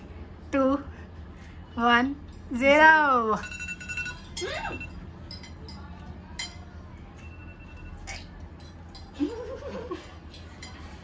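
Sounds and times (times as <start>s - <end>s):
cutlery clinking on plates: 5.2s - 11.0s.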